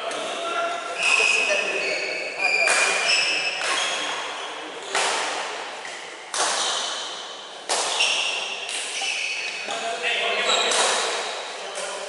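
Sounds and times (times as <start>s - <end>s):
racquet hitting shuttlecock: 2.6s - 4.1s, 4.9s - 9.0s, 10.7s - 11.9s.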